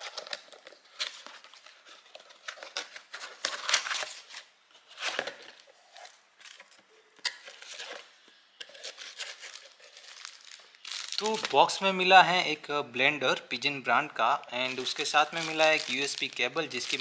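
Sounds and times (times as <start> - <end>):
cardboard and foam packaging handled: 0.0 - 11.7, 14.6 - 17.0.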